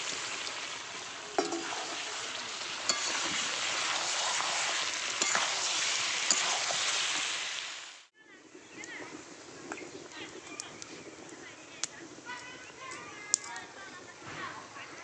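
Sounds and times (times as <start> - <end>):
meat and potatoes sizzling: 0.0 - 14.2.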